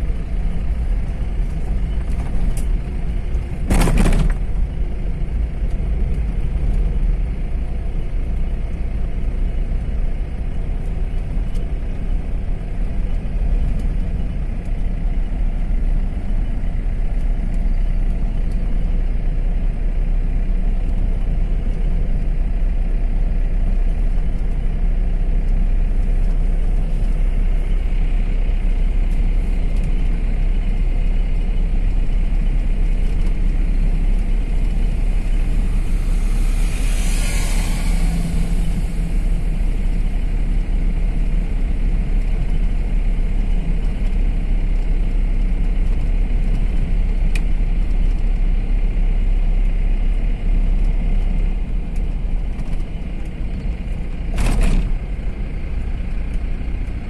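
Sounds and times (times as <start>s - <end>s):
car engine and tyre rumble: 0.0s - 57.0s
brief loud clatter: 3.6s - 4.5s, 54.3s - 55.0s.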